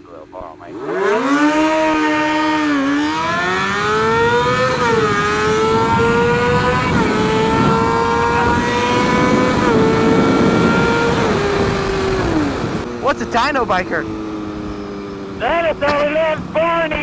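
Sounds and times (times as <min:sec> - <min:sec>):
motorcycle engine accelerating: 0:00.0 - 0:17.0
wind rush: 0:04.2 - 0:15.4.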